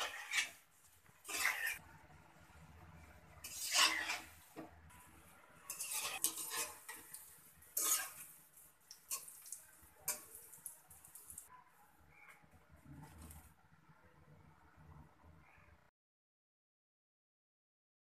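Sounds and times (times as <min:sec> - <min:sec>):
metal utensils scraping a wok: 0:00.0 - 0:00.6, 0:01.2 - 0:01.8, 0:03.3 - 0:10.5
oil sizzling: 0:00.0 - 0:11.5.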